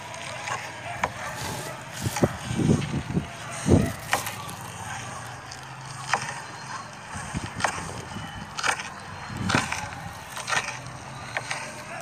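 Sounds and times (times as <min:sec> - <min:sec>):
knife chopping leafy greens: 0:00.1 - 0:05.0.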